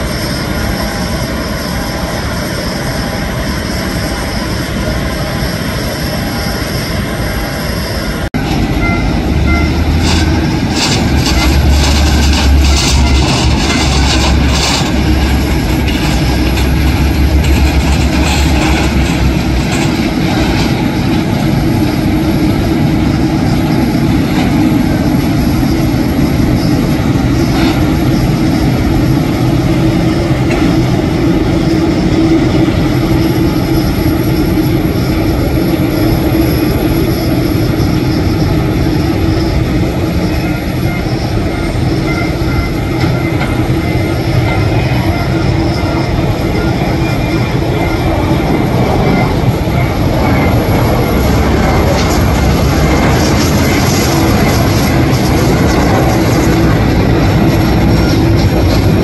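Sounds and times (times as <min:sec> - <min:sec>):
jet engines at taxi power: 0:00.0 - 0:59.0.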